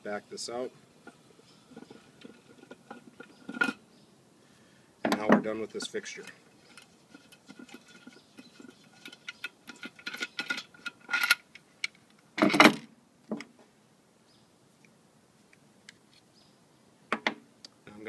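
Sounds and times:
metal clinks and scraping: 0:01.0 - 0:03.8, 0:05.6 - 0:12.7.

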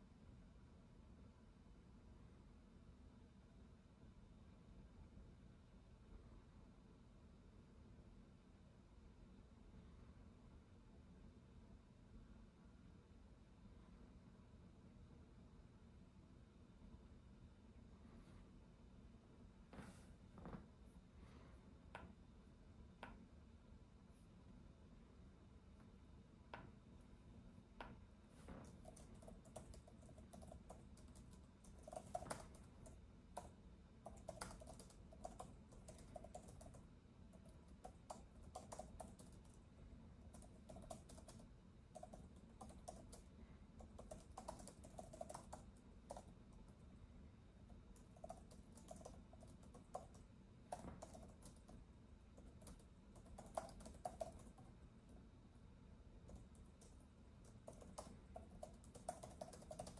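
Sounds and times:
low background noise: 0:00.0 - 0:59.9
keyboard typing: 0:27.8 - 0:47.0, 0:47.6 - 0:55.2, 0:56.2 - 0:59.9.

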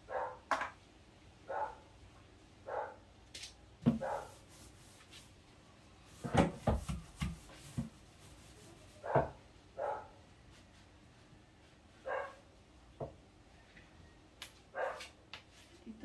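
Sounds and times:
paintbrush rubbing and knocking wood: 0:03.8 - 0:05.4, 0:06.0 - 0:09.4.

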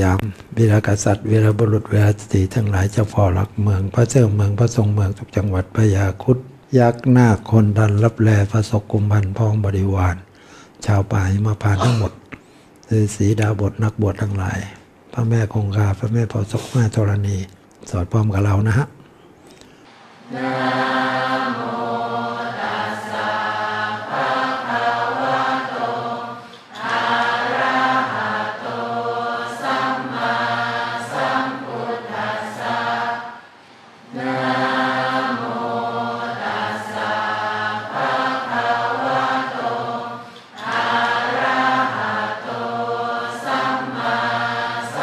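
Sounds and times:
many voices chanting in unison: 0:19.8 - 0:45.0.

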